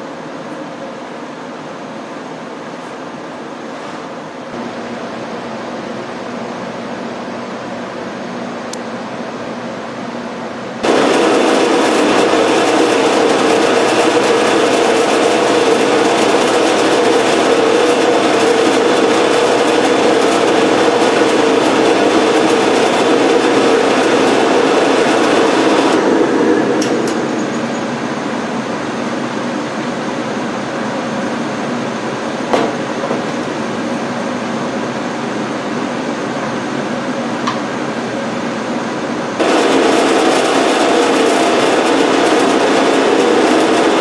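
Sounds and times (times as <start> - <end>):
drill press boring into wood: 10.8 - 26.0.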